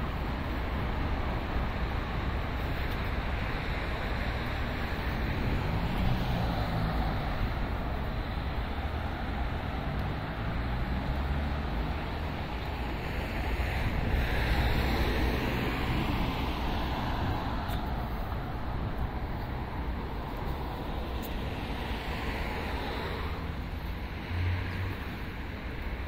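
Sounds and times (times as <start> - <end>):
city street traffic: 0.0 - 26.0
wind noise on microphone: 12.3 - 23.5.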